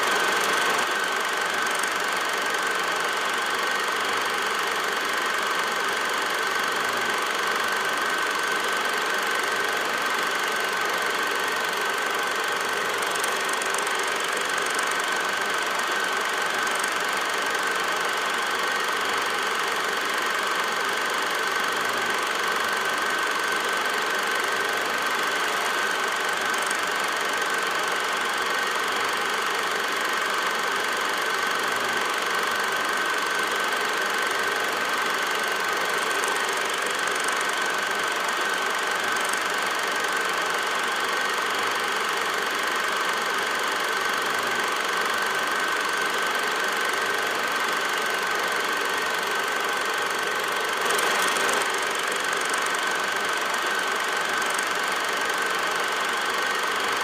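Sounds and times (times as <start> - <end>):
film projector running: 0.0 - 57.0.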